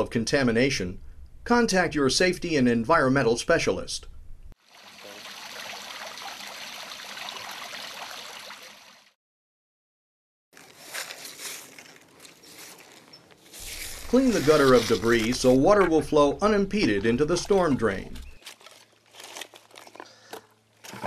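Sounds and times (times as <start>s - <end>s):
steady rush like running water: 4.6s - 9.0s
broom sweeping on concrete: 10.6s - 15.4s.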